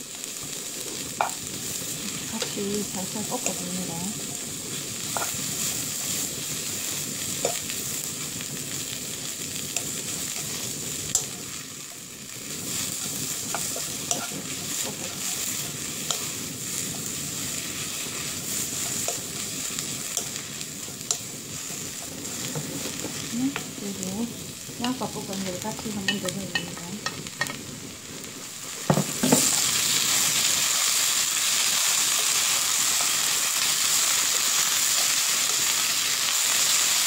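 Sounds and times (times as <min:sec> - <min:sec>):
vegetables sizzling in wok: 0:00.0 - 0:37.0
spatula tapping and scraping pan: 0:05.1 - 0:05.4, 0:07.4 - 0:07.7, 0:13.4 - 0:16.3.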